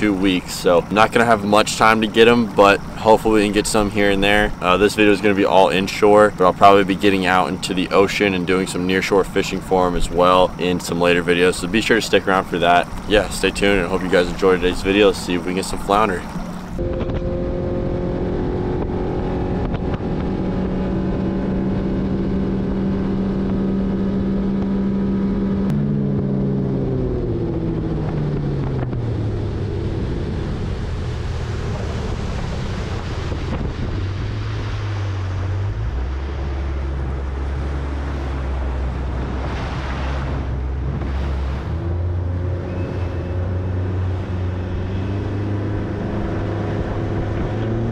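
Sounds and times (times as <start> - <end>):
water rushing off hull: 0.0 - 17.0, 25.8 - 47.9
outboard motor running: 0.0 - 47.9
wind on microphone: 12.2 - 47.9.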